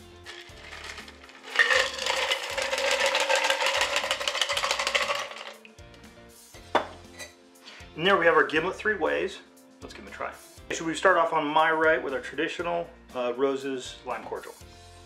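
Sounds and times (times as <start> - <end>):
ice rattling in cocktail shaker: 0.0 - 5.6
faint background music: 0.0 - 15.0.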